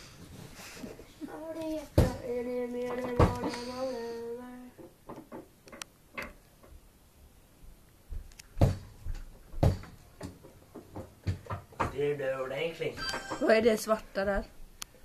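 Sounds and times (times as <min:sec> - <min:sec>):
person humming: 0:01.2 - 0:04.7.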